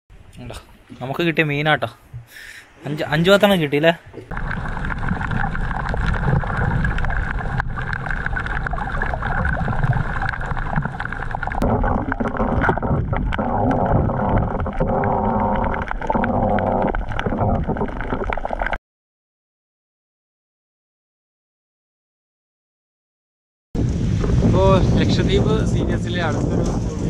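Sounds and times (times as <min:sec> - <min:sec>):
underwater rumble and gurgling: 0:04.1 - 0:18.8, 0:23.8 - 0:27.0.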